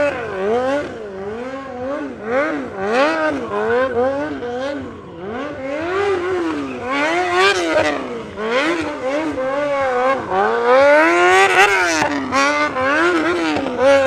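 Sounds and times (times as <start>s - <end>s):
motorcycle engine revving: 0.0s - 14.0s
tyre noise on asphalt: 0.0s - 14.0s.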